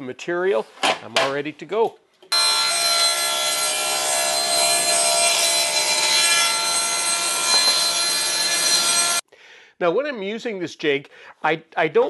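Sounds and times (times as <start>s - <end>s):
saw cutting plywood rasp: 2.3s - 9.2s
table saw blade whine: 2.3s - 9.2s.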